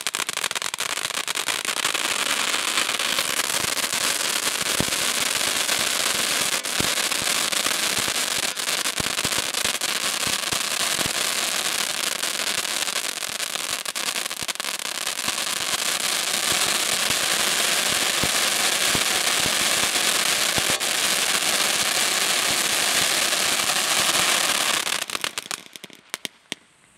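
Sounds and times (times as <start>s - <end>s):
firework fountain hissing: 0.0s - 26.4s
firework crackles: 0.0s - 26.9s.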